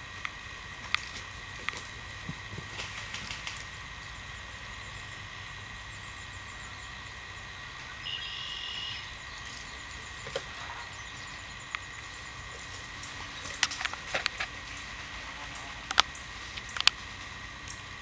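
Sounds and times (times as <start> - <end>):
short buzzy call: 8.0 - 9.1.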